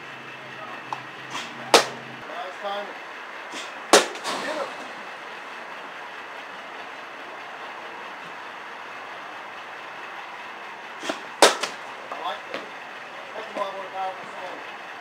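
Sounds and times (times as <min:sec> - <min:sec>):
bat striking softball: 0:00.9 - 0:02.0, 0:03.6 - 0:04.6, 0:11.0 - 0:11.8.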